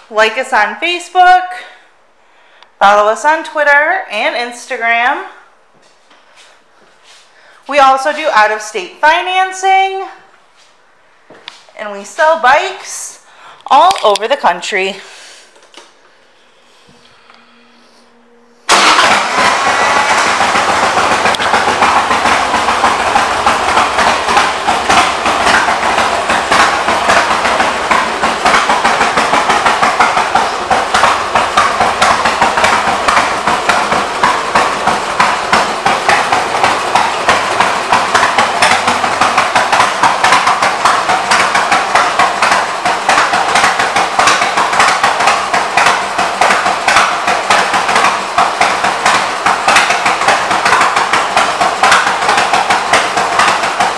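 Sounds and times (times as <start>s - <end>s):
motorcycle engine idling: 16.9s - 53.9s.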